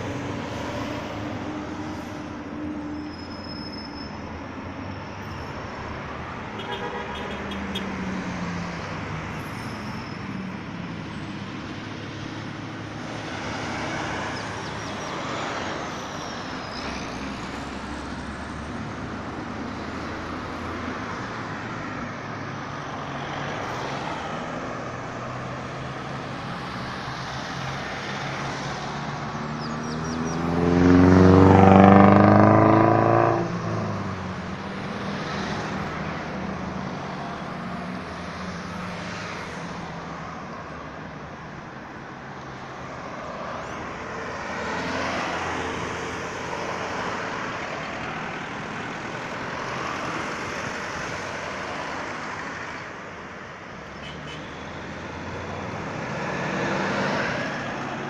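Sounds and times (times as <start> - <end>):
hum of cars passing: 0.0 - 58.0
vehicle engine accelerating past: 29.9 - 34.1.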